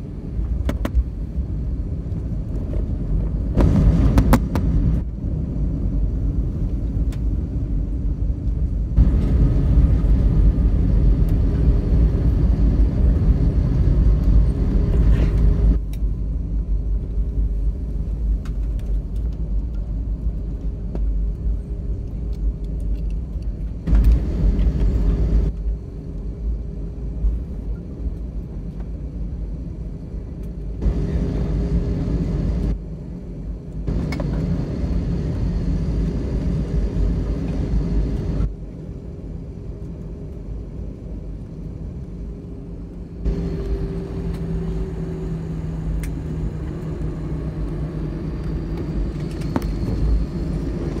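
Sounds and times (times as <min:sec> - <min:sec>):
low rumble of wheels and engines: 0:00.0 - 0:51.0
steady hum: 0:23.8 - 0:27.7, 0:30.6 - 0:39.8, 0:41.8 - 0:51.0.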